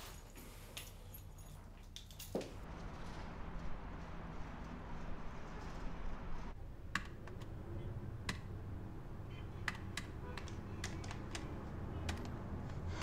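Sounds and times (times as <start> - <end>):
calculator keys clicking: 9.6 - 12.4.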